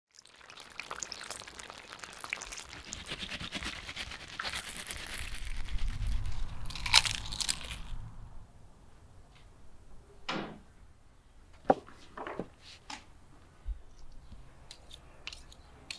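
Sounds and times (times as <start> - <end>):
fried chicken crackling: 0.1 - 8.0
crunchy bite: 0.8 - 8.0.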